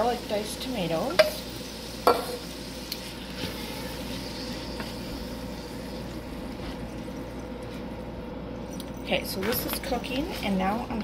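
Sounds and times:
meat and tomatoes sizzling in a skillet: 0.0s - 7.1s
steady low hum: 0.0s - 11.0s.

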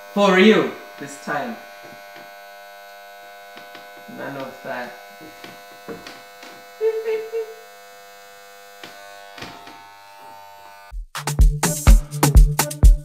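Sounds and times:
electric hair clippers buzzing: 0.0s - 10.9s
music with heavy beat: 10.9s - 13.0s.

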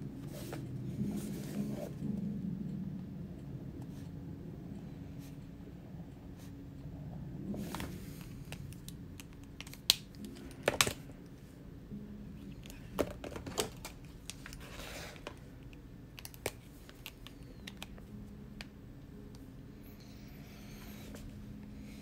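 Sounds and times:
pens clicking and tapping: 7.8s - 11.0s, 12.6s - 18.1s.

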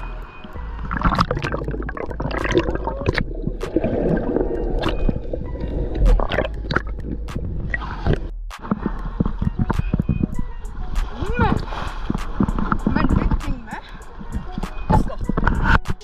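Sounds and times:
sea water sloshing and gurgling: 0.0s - 15.9s
water and grit knocking on camera: 6.0s - 16.0s.

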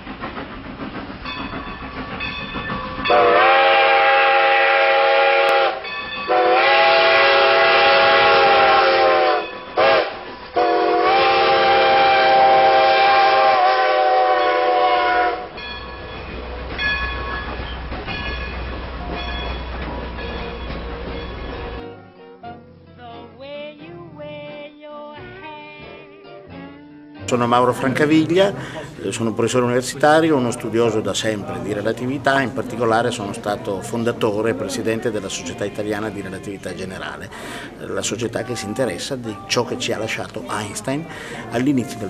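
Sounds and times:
faint train clatter: 0.0s - 4.3s, 15.5s - 21.8s
train rumbling: 0.0s - 21.9s, 27.3s - 42.0s
steam locomotive chime whistle: 1.2s - 21.9s.

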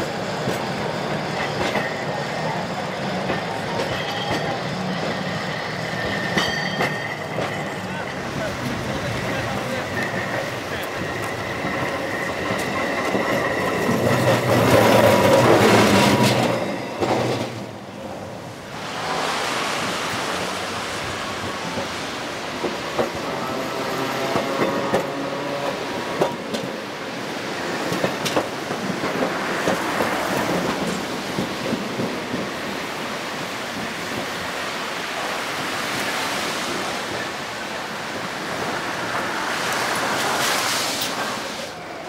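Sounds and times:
streetcar running on tracks: 0.0s - 42.0s
city street traffic: 17.8s - 27.2s.

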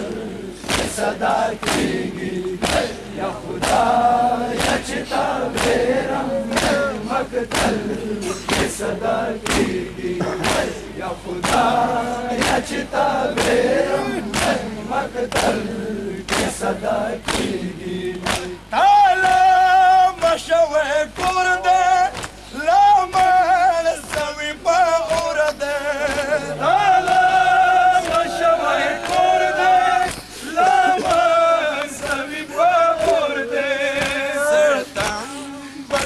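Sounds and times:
crowd of men chanting: 0.0s - 36.0s
men beating chests in unison: 0.0s - 36.0s
man singing a lament loudly: 18.6s - 36.0s.

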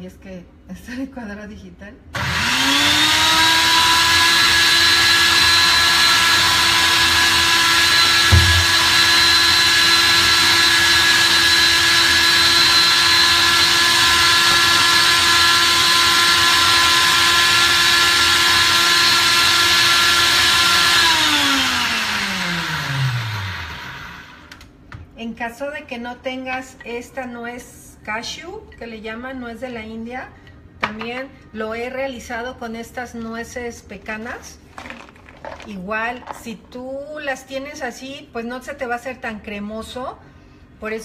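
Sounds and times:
blender motor whine: 2.2s - 24.6s
brief knock: 8.3s - 8.9s.

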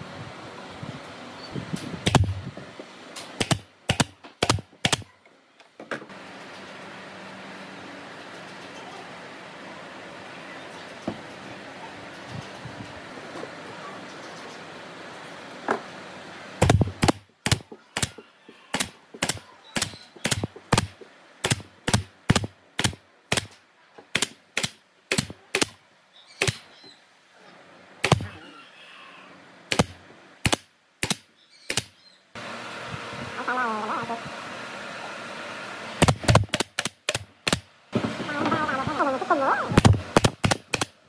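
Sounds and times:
pneumatic nailer firing: 1.7s - 2.4s, 3.2s - 5.1s, 16.6s - 25.8s, 26.4s - 26.7s, 28.0s - 28.3s, 29.7s - 31.9s, 36.0s - 38.3s, 39.8s - 41.0s.

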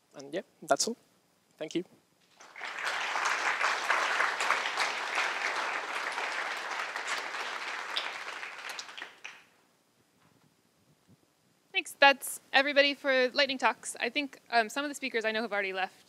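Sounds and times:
audience applause: 2.3s - 9.5s.

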